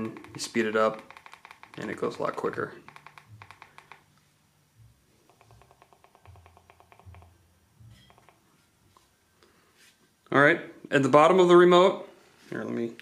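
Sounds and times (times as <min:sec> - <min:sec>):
faint rapid ticking: 0:00.0 - 0:04.1.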